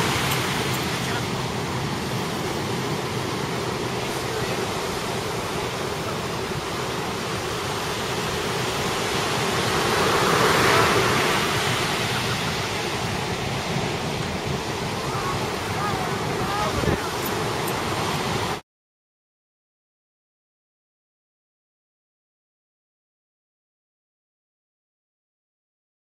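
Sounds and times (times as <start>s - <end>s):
ocean surf breaking: 0.0s - 18.6s.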